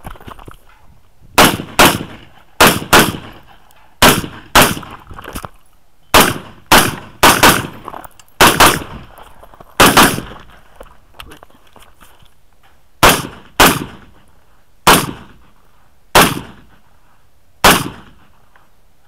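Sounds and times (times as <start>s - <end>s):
rifle shots: 1.4s - 5.0s, 6.1s - 9.1s, 9.8s - 10.4s, 13.0s - 14.2s, 14.8s - 15.4s, 16.1s - 16.8s, 17.6s - 18.3s.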